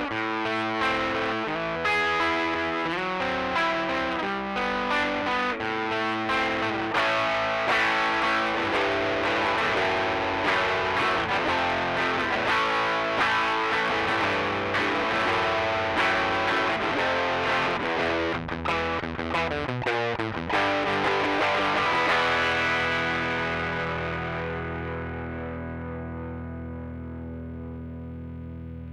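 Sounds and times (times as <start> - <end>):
distorted electric guitar: 0.0 - 28.9.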